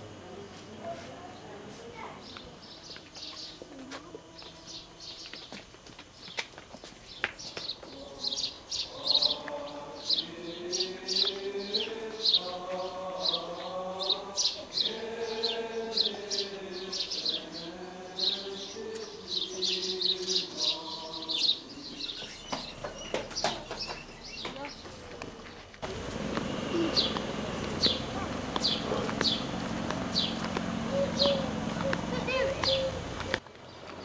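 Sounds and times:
small birds chirping: 1.0s - 34.0s
choir chanting held notes: 3.2s - 5.3s, 7.8s - 22.4s, 25.2s - 33.4s.

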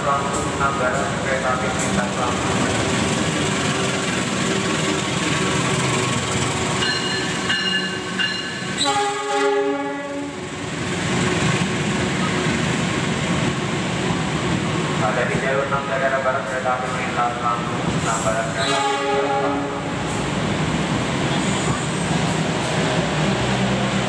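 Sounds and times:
train rumbling on track: 0.0s - 24.0s
loud train horn blast: 8.8s - 10.4s, 18.5s - 20.0s.

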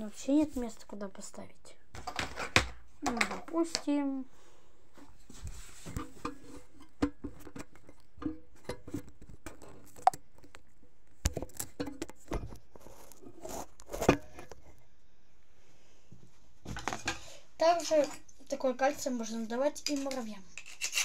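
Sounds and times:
objects handled and set down: 1.9s - 3.9s, 5.0s - 14.8s, 16.1s - 17.4s.

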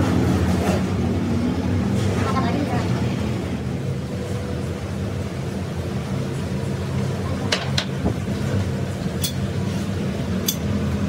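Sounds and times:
clicks of steel jack parts: 10.4s - 10.7s.

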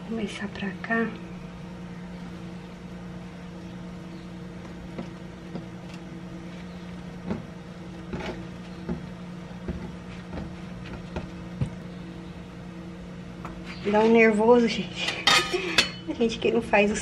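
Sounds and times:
low mechanical hum: 0.0s - 17.0s
hands tapping dough on counter: 8.1s - 11.8s.

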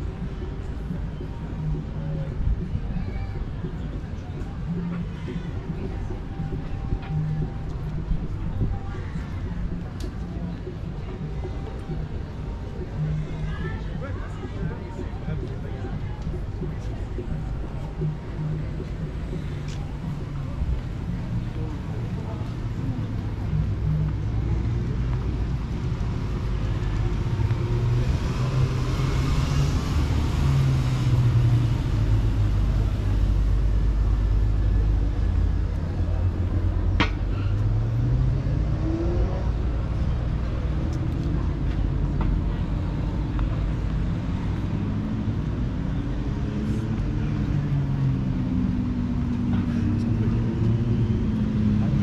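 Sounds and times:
vehicles passing: 0.0s - 52.0s
engine speeding up: 37.6s - 40.1s.

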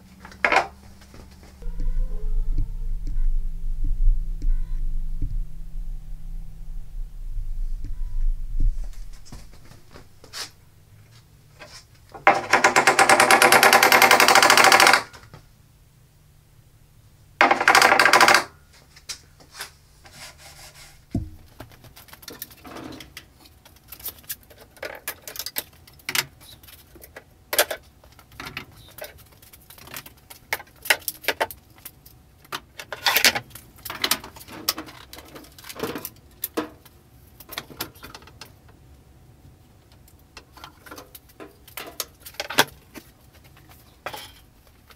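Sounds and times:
fast mechanical rattles: 12.2s - 15.2s, 17.4s - 18.5s.

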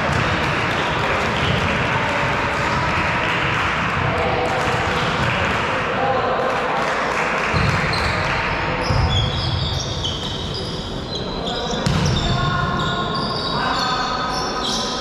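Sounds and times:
echoing voices: 0.0s - 15.0s
volleyball thuds: 11.8s - 12.3s.

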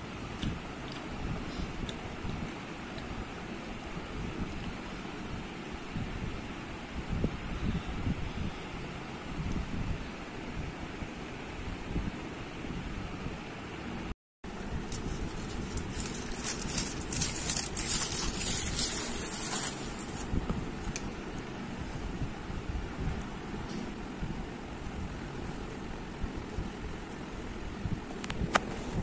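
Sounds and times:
steady background noise: 0.0s - 29.0s
aluminium foil crinkling: 14.6s - 21.1s.

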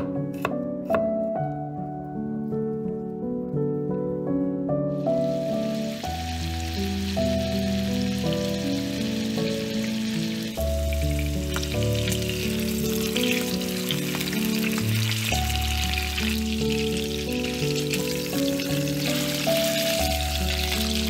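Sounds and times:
soft instrumental music: 0.0s - 21.0s
fish sizzling in a frying pan: 5.0s - 21.0s.

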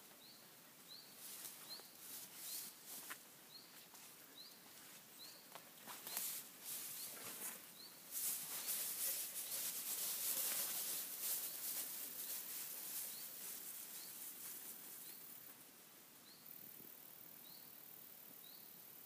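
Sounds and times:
bird chirping: 0.0s - 14.3s
footsteps through tall grass: 0.9s - 15.2s.

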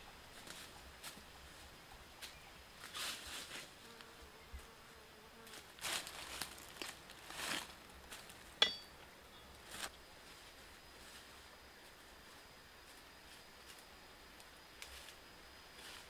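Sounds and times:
faint high insect drone: 0.0s - 16.0s
insect buzzing: 0.2s - 8.5s
footsteps in dry leaves: 5.5s - 8.5s.

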